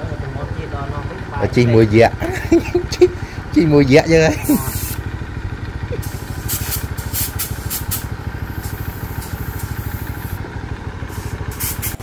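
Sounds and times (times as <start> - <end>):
motorcycle engine idling: 0.0 - 12.0
short bursts of hiss: 4.5 - 5.0, 6.0 - 10.4, 11.1 - 12.0.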